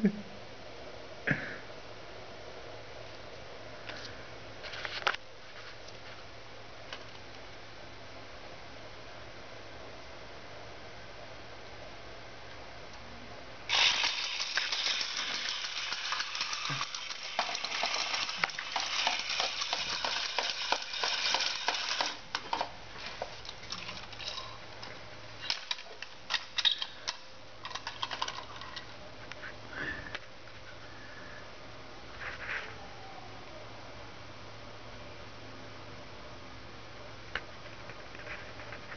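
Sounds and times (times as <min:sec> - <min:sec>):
plastic toy clattering on tiles: 0:13.7 - 0:28.9.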